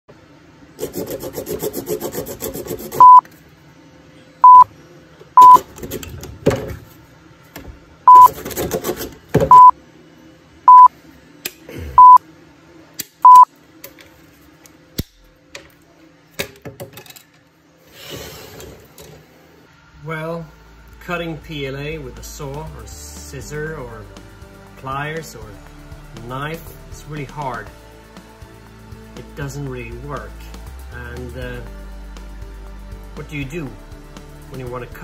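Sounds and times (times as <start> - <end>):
hand tools sawing plastic: 0.8 - 3.0
short loud beeps: 4.4 - 4.7, 5.4 - 5.6, 8.1 - 8.3, 9.5 - 9.7, 10.7 - 10.9, 12.0 - 12.2, 13.3 - 13.5.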